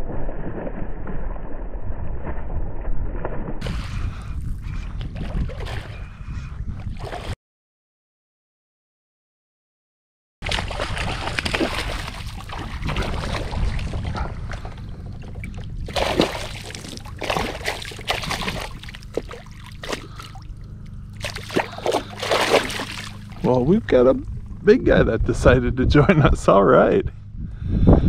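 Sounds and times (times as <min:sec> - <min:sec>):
fish splashing at water surface: 0:10.4 - 0:14.7, 0:15.9 - 0:20.5, 0:21.1 - 0:23.4.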